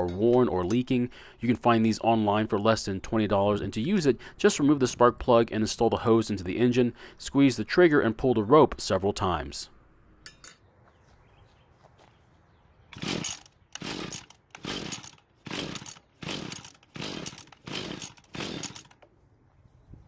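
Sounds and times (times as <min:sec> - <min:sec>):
small engine cranked by recoil starter: 0:12.9 - 0:19.0.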